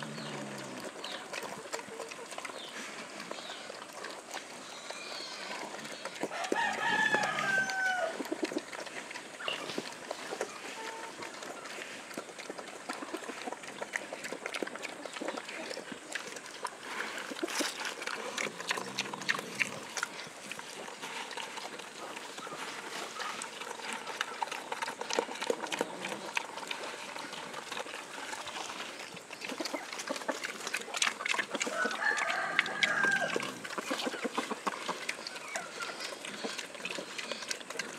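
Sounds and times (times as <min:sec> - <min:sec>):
pig chewing wetly: 0:00.0 - 0:37.9
chicken calling: 0:06.3 - 0:08.2, 0:31.6 - 0:34.6.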